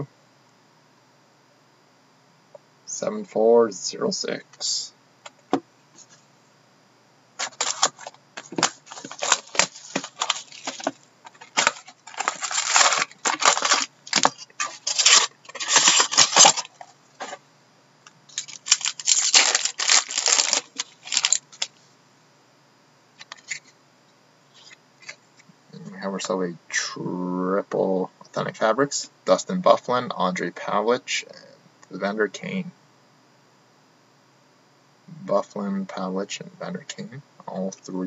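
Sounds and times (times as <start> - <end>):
packaging being torn and crinkled: 7.4 - 17.4, 18.3 - 21.7.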